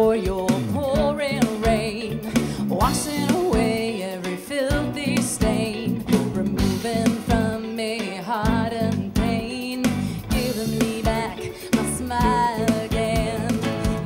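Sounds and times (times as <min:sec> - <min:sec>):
bass: 0:00.0 - 0:04.1, 0:04.7 - 0:14.0
drums: 0:00.0 - 0:14.0
keyboard: 0:00.0 - 0:14.0
woman singing: 0:00.0 - 0:14.0.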